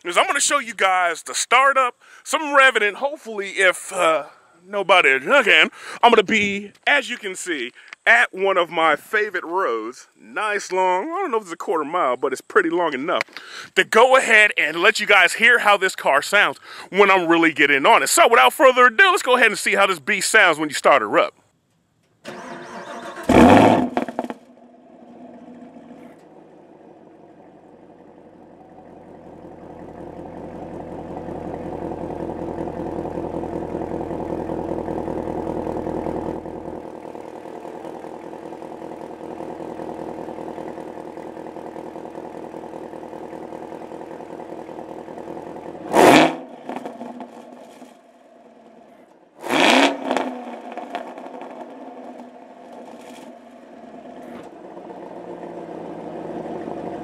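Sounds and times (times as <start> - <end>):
car engine starting and idling: 22.0 - 57.0
engine revving: 22.3 - 57.0.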